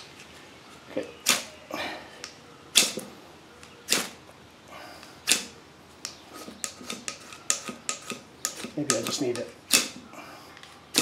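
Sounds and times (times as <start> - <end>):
knife scraping ferro rod: 6.3 - 10.0.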